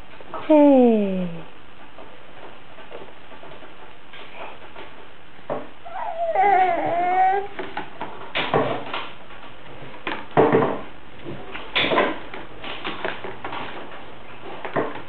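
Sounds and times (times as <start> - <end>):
baby squealing: 5.9 - 7.5.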